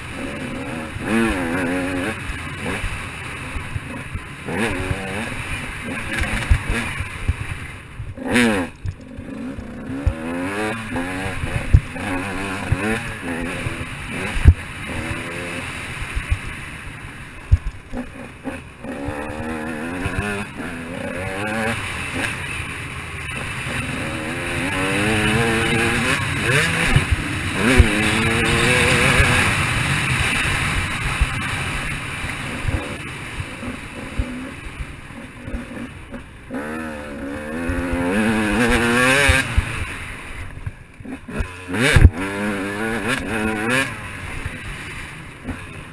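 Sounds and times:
dirt bike engine revving: 0:00.0 - 0:45.9.

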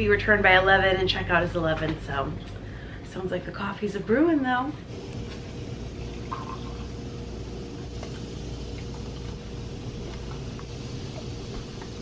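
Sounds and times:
faint steady hum: 0:00.0 - 0:12.0
coffee maker hissing: 0:04.9 - 0:12.0.

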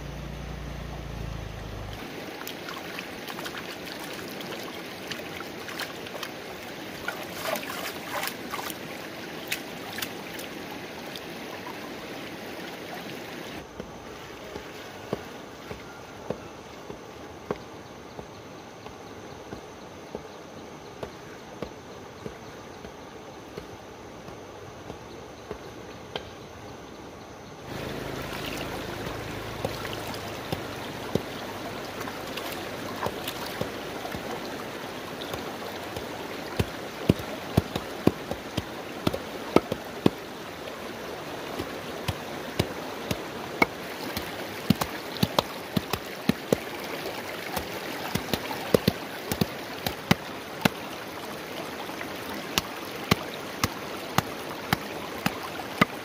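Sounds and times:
stream running over rocks: 0:00.0 - 0:25.8, 0:27.6 - 0:56.0
stick beating moss against stone: 0:29.0 - 0:46.7, 0:47.4 - 0:50.9, 0:52.4 - 0:56.0.

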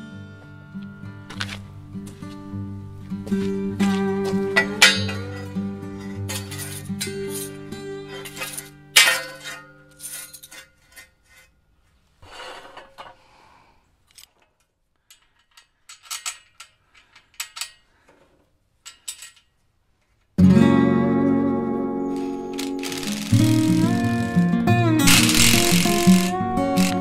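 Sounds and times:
impact driver running: 0:22.6 - 0:27.0.

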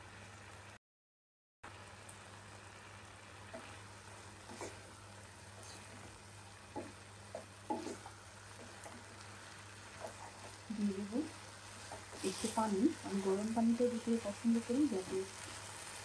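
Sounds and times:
simmering hiss: 0:01.7 - 0:16.0
spatula scraping and knocking pot: 0:04.5 - 0:04.8, 0:06.7 - 0:09.1.

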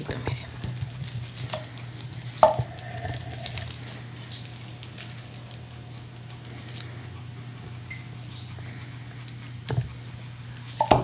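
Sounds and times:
makeup brushes clicking and rustling: 0:00.0 - 0:07.1
steady low hum: 0:00.0 - 0:11.0.

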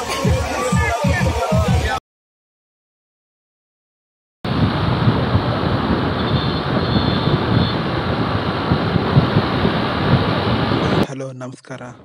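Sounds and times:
wind roaring over microphone: 0:04.5 - 0:11.1
road noise: 0:04.5 - 0:12.0.

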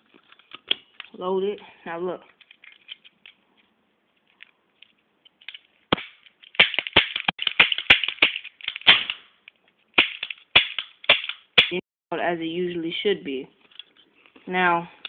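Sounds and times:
toy cap gun cracks: 0:05.4 - 0:09.3, 0:10.0 - 0:11.8.

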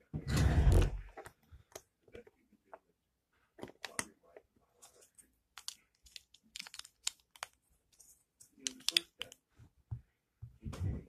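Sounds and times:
plastic toy bricks clicking: 0:05.6 - 0:07.6.

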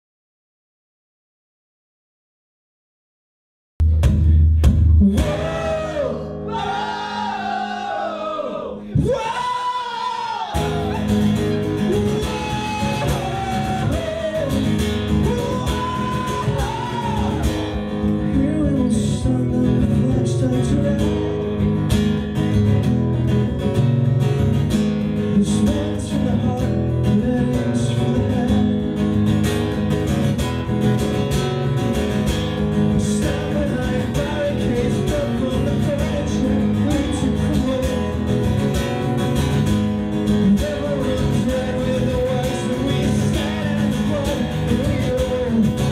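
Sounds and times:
acoustic guitar strumming: 0:03.9 - 0:09.8, 0:10.6 - 0:45.9
man singing: 0:05.0 - 0:07.2, 0:08.6 - 0:21.5, 0:25.2 - 0:29.0, 0:32.8 - 0:38.4, 0:40.2 - 0:45.9.

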